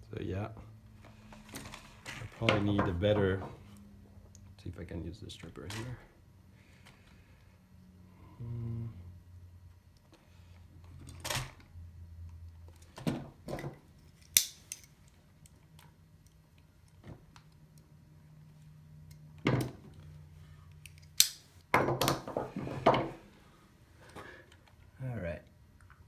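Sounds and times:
wire stripper pliers snipping: 14.2s - 14.9s, 20.8s - 21.4s.

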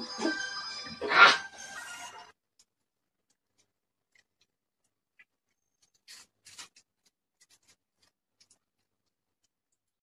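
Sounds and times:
chewing: 2.6s - 10.0s.

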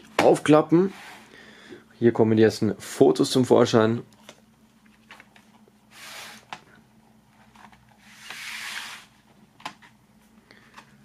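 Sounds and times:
cardboard panel swishing: 8.0s - 9.2s.

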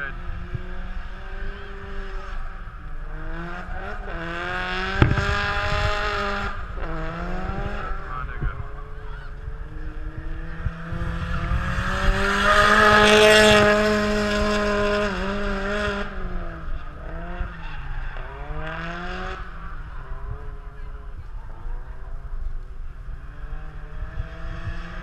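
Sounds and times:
tires squealing: 0.0s - 21.6s
car engine revving: 0.0s - 25.0s
wind buffeting microphone: 4.8s - 14.8s.

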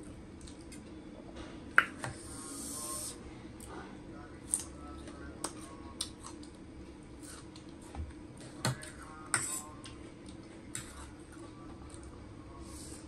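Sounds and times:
steady low hum: 0.0s - 13.0s
quiet chewing: 4.4s - 9.0s
fork scraping against a plate: 9.3s - 9.8s, 10.7s - 11.2s.

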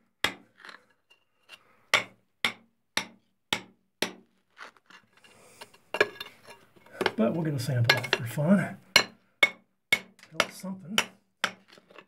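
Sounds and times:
hammer striking chisel on rock: 1.9s - 4.2s, 8.9s - 11.7s.

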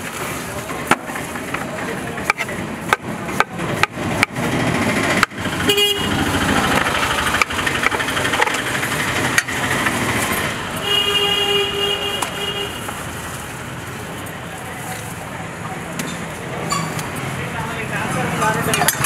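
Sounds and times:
street traffic noise: 0.0s - 19.0s
vehicle horn honking: 5.6s - 6.3s, 10.8s - 12.9s.

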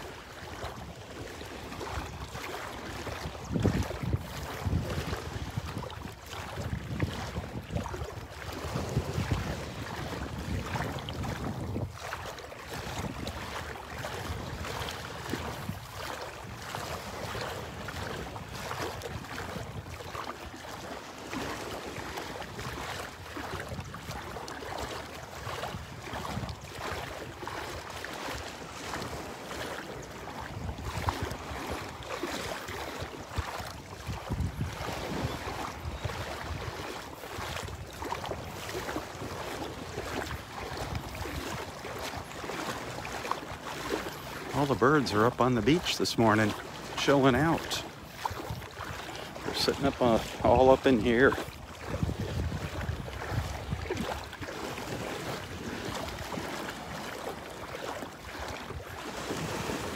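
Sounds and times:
seawater splashing around legs: 0.0s - 59.9s
wind buffeting microphone: 1.6s - 20.2s, 22.5s - 24.3s, 30.3s - 43.2s, 47.4s - 56.6s.

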